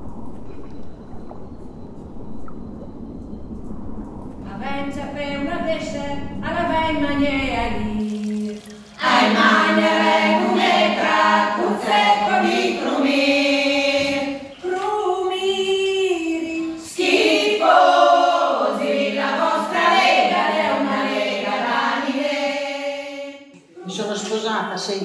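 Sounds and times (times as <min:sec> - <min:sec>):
women's choir singing unaccompanied: 0:09.0 - 0:23.6.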